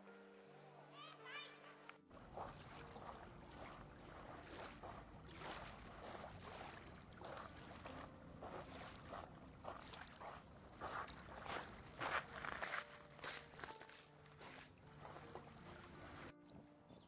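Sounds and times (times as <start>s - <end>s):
lake water lapping: 1.5s - 16.6s
footsteps crunching on pebbles: 7.2s - 15.5s.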